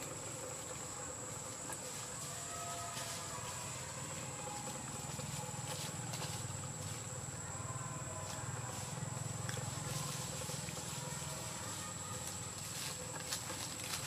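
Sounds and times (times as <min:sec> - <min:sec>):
faint clicks and rustles: 0:08.2 - 0:14.0.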